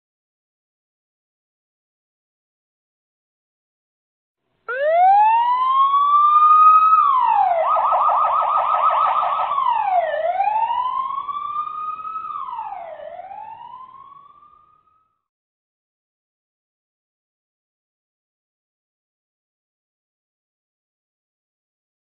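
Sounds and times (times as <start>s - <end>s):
police siren wailing and yelping: 4.7s - 15.1s.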